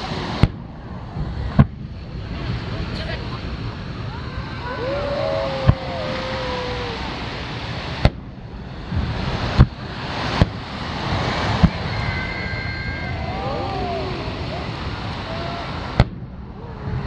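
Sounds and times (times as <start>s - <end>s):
steady rushing background noise: 0.0s - 17.0s
firework shells booming: 0.2s - 2.1s, 5.6s - 6.1s, 7.6s - 11.9s, 15.8s - 16.4s.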